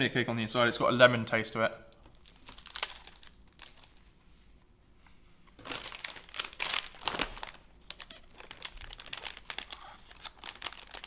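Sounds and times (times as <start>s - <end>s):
plastic wrapper crinkling: 1.9s - 4.0s, 5.6s - 11.0s.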